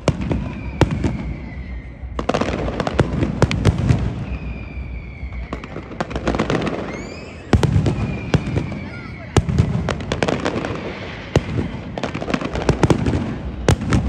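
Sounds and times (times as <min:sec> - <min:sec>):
fireworks bangs and crackling: 0:00.0 - 0:14.0
thin high firework whistle: 0:00.1 - 0:03.1, 0:03.9 - 0:11.8.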